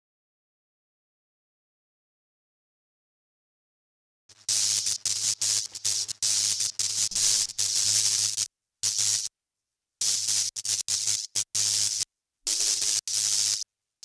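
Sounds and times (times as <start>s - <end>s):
static hiss: 4.3s - 9.3s, 10.0s - 13.7s.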